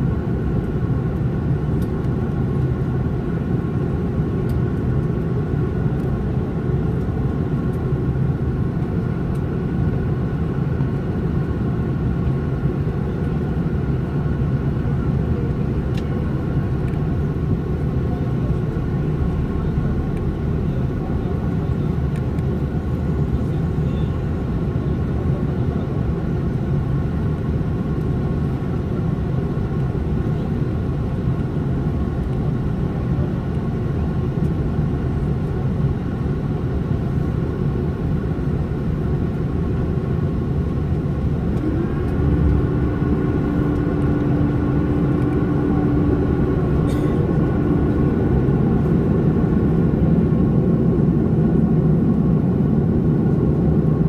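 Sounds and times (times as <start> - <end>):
aircraft engines and airflow rumble: 0.0 - 54.0
faint high hum: 41.2 - 54.0.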